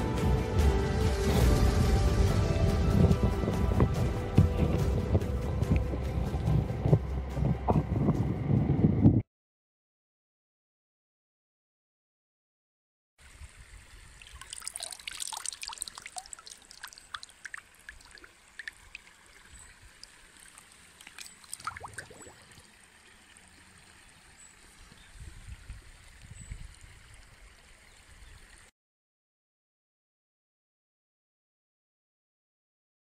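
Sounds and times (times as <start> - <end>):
low rumbling thumps: 0.9 - 9.2
river water splashing and gurgling: 13.2 - 28.7.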